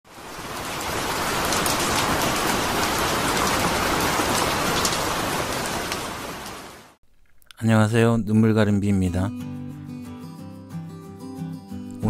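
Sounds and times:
sharp raindrop hits: 0:00.1 - 0:07.0
steady rain falling: 0:00.1 - 0:07.0.

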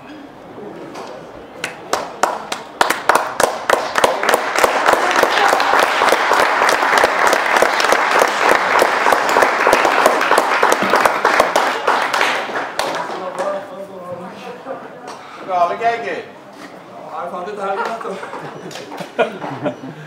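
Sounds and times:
spectators applauding: 0:01.6 - 0:13.6.

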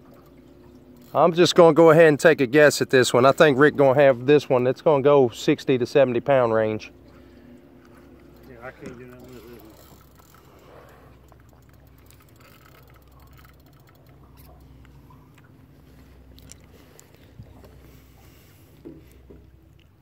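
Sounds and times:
low rumble of wind and water: 0:00.0 - 0:20.0
light clicks and taps: 0:11.2 - 0:17.8.

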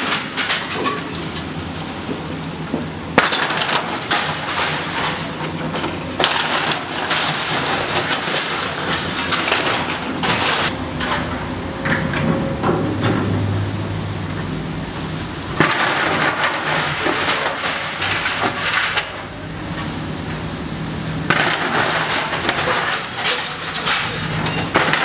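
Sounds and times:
metal roofing crunching and clattering: 0:00.0 - 0:13.5, 0:15.5 - 0:19.4, 0:21.3 - 0:25.0
excavator engine running: 0:00.0 - 0:25.0.

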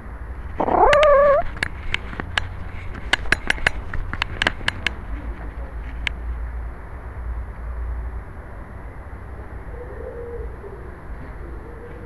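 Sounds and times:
cat meowing: 0:00.6 - 0:01.5
sharp irregular clicks: 0:00.8 - 0:05.0.

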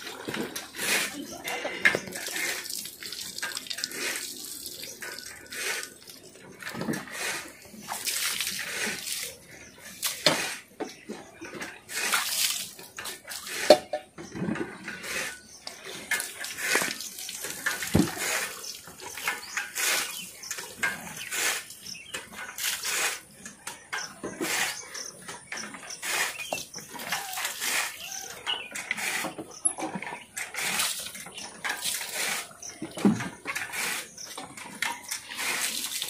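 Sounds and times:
water splashing on animal: 0:02.0 - 0:07.1, 0:07.7 - 0:10.3, 0:11.9 - 0:13.5.

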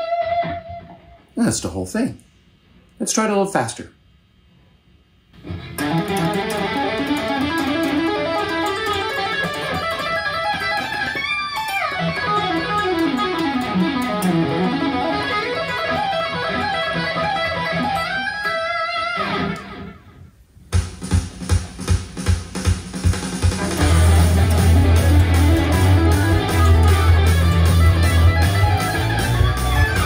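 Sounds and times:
fast electric guitar shred: 0:05.4 - 0:20.0, 0:23.0 - 0:30.0
drum beat: 0:20.7 - 0:30.0.

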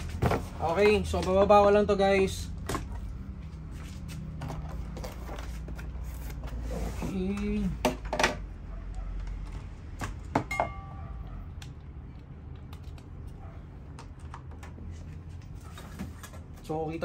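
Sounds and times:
ringing metallic clink: 0:10.5 - 0:11.0.

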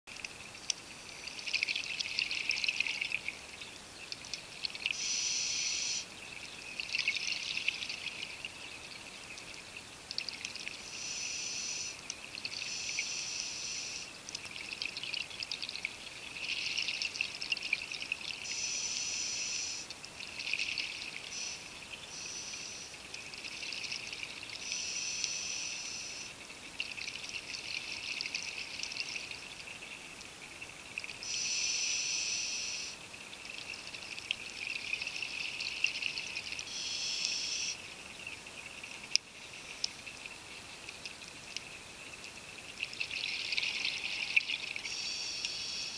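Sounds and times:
regulator inhale hiss: 0:05.0 - 0:06.0, 0:10.9 - 0:12.0, 0:12.7 - 0:14.1, 0:18.5 - 0:19.9, 0:21.3 - 0:23.0, 0:24.6 - 0:26.3, 0:31.2 - 0:33.0, 0:36.7 - 0:37.8, 0:44.9 - 0:45.9.

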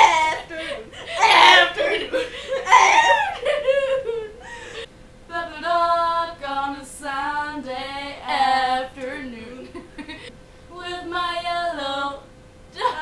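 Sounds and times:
girls giggling and laughing: 0:00.0 - 0:04.9.

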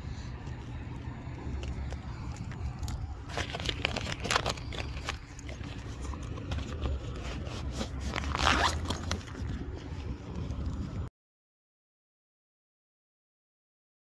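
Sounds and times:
hand rubbing on phone microphone: 0:01.4 - 0:11.1.

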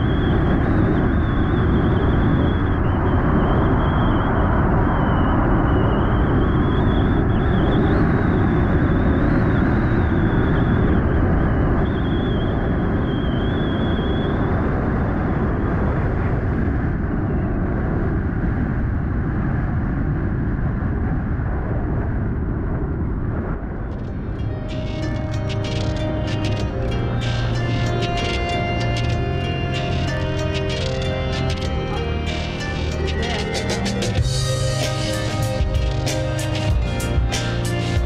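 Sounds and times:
thin high whine: 0:00.0 - 0:15.2, 0:23.8 - 0:38.0
wind buffeting microphone: 0:00.0 - 0:38.0.

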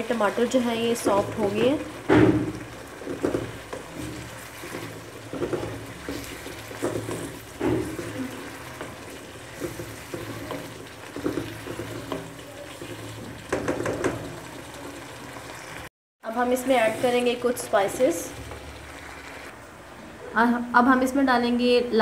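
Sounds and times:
spatula stirring and mashing: 0:00.0 - 0:15.8
soft sizzling: 0:00.0 - 0:19.7.

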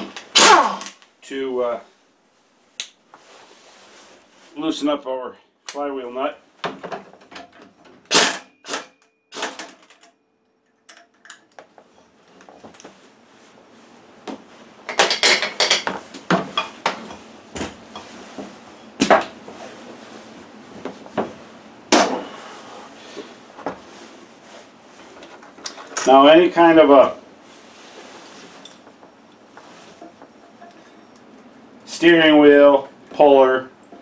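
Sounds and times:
low steady hiss: 0:00.0 - 0:34.0
pneumatic impact wrench hammering: 0:08.0 - 0:09.8
metal clanks and clatter: 0:30.0 - 0:31.6.

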